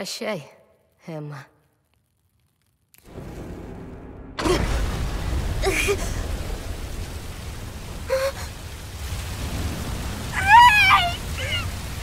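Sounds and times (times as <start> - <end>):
fire burning with rushing roar: 1.7 - 12.0.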